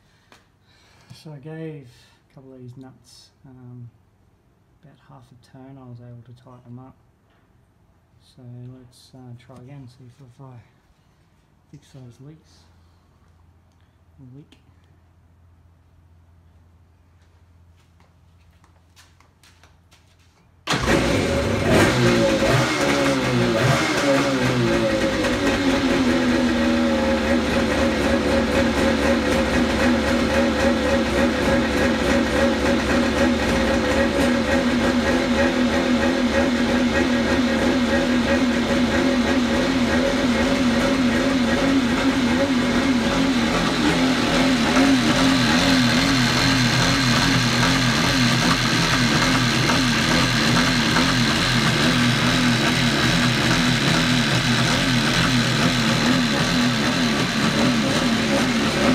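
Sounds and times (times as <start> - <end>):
jet ski engine idling: 20.7 - 58.9.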